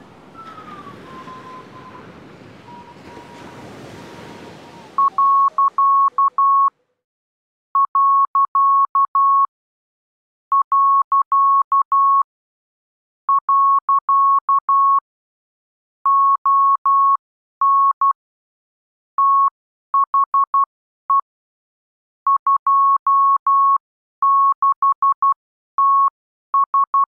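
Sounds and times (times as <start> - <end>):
morse code beeps: 5.0 - 6.7, 7.8 - 9.5, 10.5 - 12.2, 13.3 - 15.0, 16.1 - 18.1, 22.3 - 27.0.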